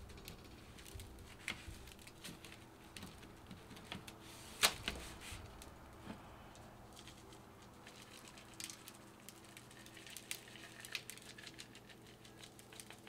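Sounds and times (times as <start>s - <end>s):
granules ticking on meat and pan: 7.0s - 13.0s.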